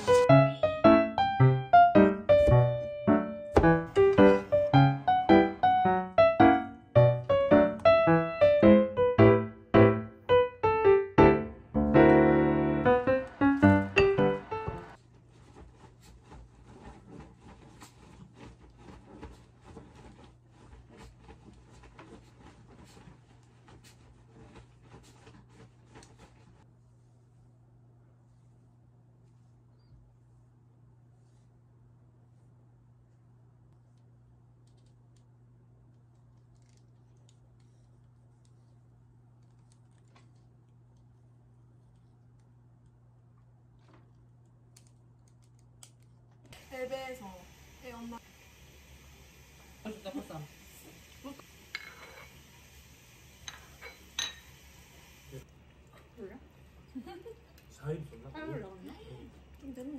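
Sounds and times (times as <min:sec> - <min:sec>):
piano melody: 0:00.0 - 0:15.0.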